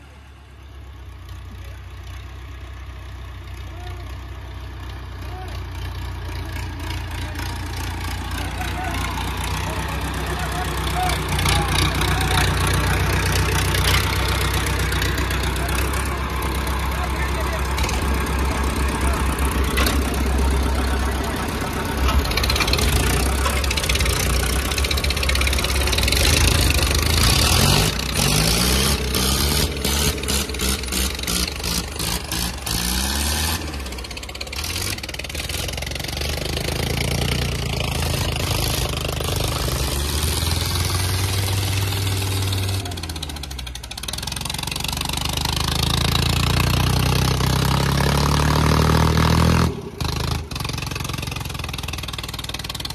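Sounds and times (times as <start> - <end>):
tractor diesel engines under load: 0.0 - 52.9.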